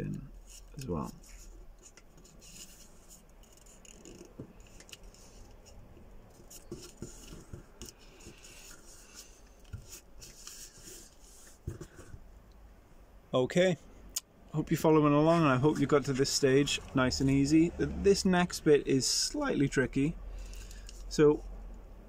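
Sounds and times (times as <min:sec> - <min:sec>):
paper rustling and creasing: 0:00.4 - 0:12.2.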